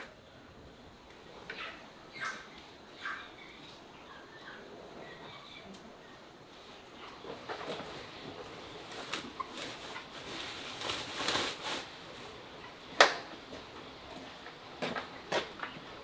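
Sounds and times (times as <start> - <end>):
plastic sack rustling: 7.6 - 12.6.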